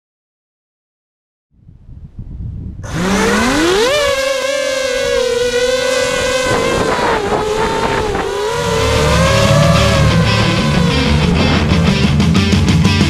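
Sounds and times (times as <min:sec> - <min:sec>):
low wind noise: 0:01.6 - 0:13.0
drone motors whining: 0:02.8 - 0:13.0.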